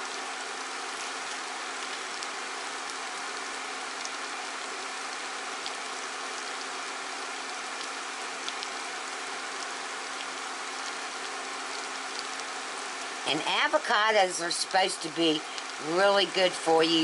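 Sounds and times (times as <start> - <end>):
faint steady hum: 0.0 - 17.0
faint crackles: 15.3 - 15.8.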